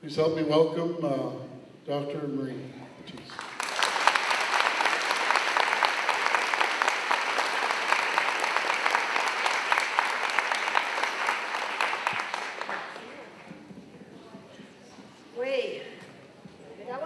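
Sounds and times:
audience applauding: 0:03.2 - 0:13.7.

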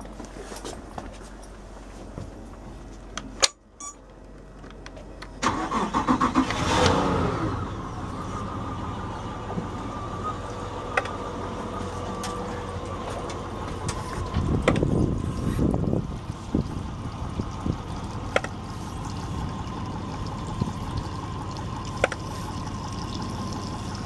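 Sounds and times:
electric starter cranking: 0:05.4 - 0:07.5
outboard motor idling: 0:06.5 - 0:24.0.

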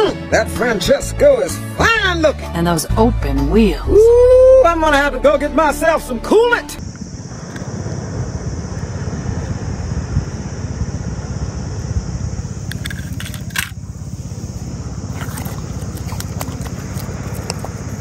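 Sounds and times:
wind buffeting microphone: 0:06.8 - 0:18.0.

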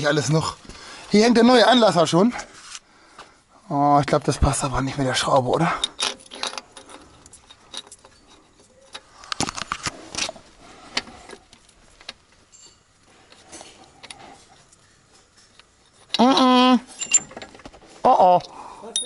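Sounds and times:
metallic clinks and knocks: 0:05.7 - 0:09.1, 0:12.4 - 0:14.1, 0:17.0 - 0:17.8, 0:18.4 - 0:19.0.

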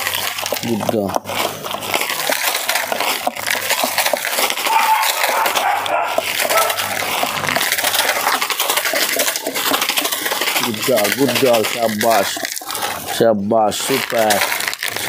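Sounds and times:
dog lapping water: 0:00.0 - 0:15.0.

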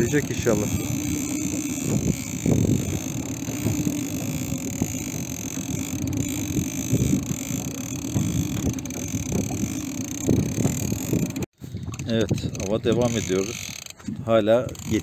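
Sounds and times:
wind noise: 0:00.0 - 0:13.3
boat engine humming: 0:00.0 - 0:15.0.

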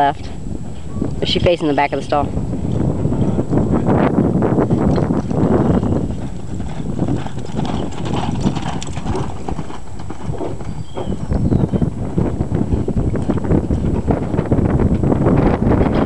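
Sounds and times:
horse hoofbeats on sand: 0:04.6 - 0:16.0.

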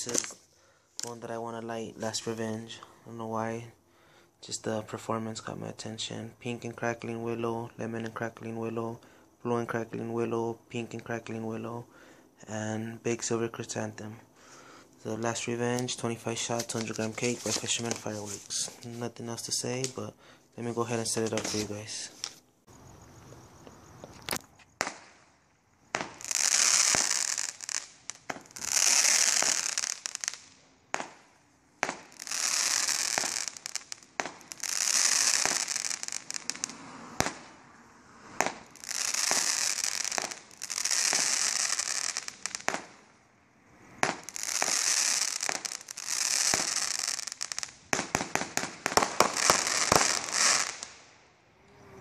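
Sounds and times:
firework launch pops: 0:00.0 - 0:01.1, 0:21.2 - 0:22.4, 0:24.0 - 0:25.3, 0:25.9 - 0:37.6, 0:38.3 - 0:43.0, 0:43.9 - 0:51.1
firework crackling: 0:00.0 - 0:02.9, 0:15.0 - 0:20.0, 0:20.8 - 0:22.4, 0:23.8 - 0:43.2, 0:43.8 - 0:51.2.

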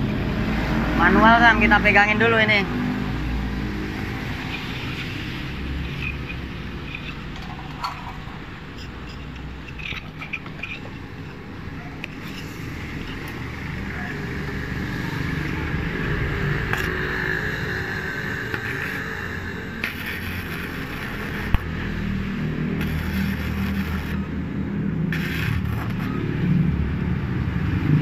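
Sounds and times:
welding arc crackling: 0:03.0 - 0:26.4
welder hiss: 0:16.8 - 0:21.7, 0:22.8 - 0:24.2, 0:25.1 - 0:26.1.

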